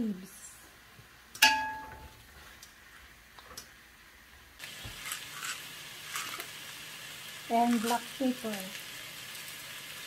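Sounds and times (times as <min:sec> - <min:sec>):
meat sizzling in a pan: 0:04.6 - 0:10.0
spatula scraping a pan: 0:04.9 - 0:06.5.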